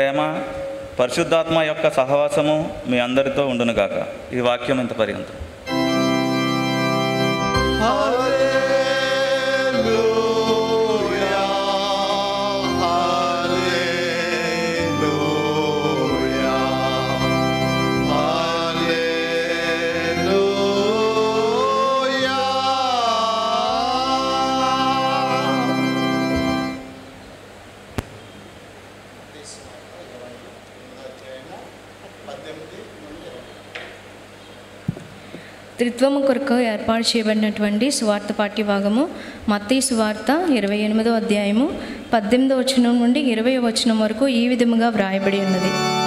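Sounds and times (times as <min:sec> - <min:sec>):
organ chords: 0:05.6 - 0:28.8, 0:44.6 - 0:46.0
person singing: 0:07.5 - 0:26.7.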